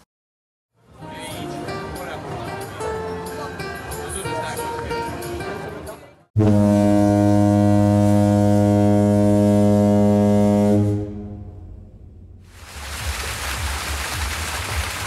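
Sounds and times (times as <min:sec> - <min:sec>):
deep horn blast: 0:06.4 - 0:12.4.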